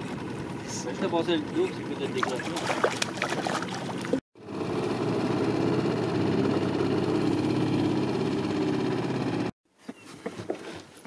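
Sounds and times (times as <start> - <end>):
boat motor running: 0.0 - 9.5
fish splashing at water surface: 2.2 - 4.2.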